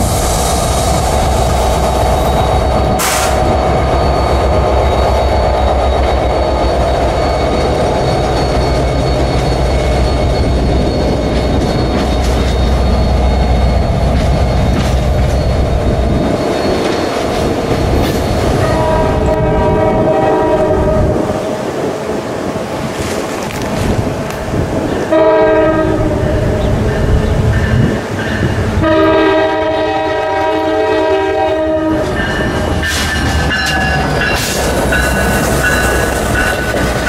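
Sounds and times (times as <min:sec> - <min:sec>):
train rumbling: 0:00.0 - 0:37.0
train horn: 0:18.6 - 0:21.5, 0:25.1 - 0:26.8, 0:28.8 - 0:32.2.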